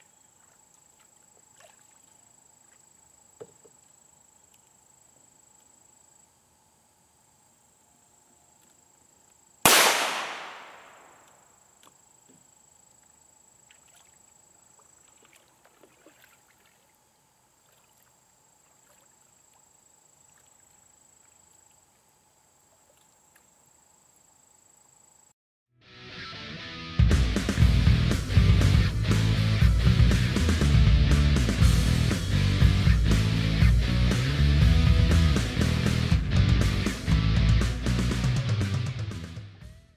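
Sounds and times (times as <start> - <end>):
insects buzzing: 0.0 - 25.4
pistol shot echoing: 9.7 - 11.4.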